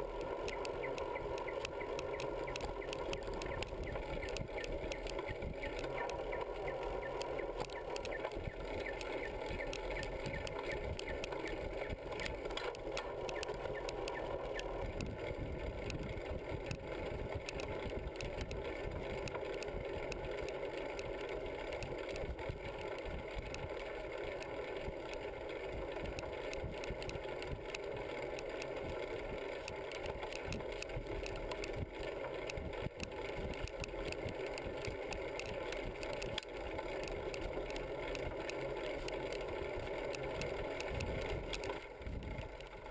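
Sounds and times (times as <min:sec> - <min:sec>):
tyres rolling on road: 0:00.0 - 0:42.9
wind on microphone: 0:14.7 - 0:19.2, 0:40.9 - 0:42.5.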